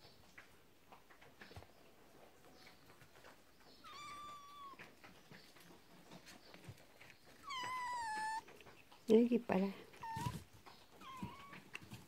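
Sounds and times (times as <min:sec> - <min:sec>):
kitten meowing: 0:03.8 - 0:04.8, 0:07.4 - 0:08.4, 0:09.9 - 0:10.4, 0:11.0 - 0:11.7.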